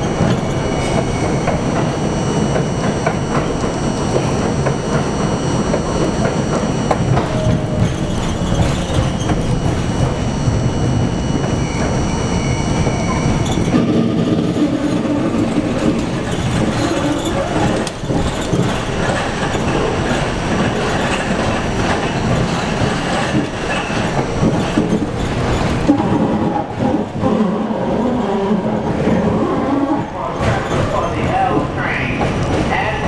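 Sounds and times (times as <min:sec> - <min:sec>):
high whine: 0:00.0 - 0:30.3
train wheels rumbling on rails: 0:00.0 - 0:33.0.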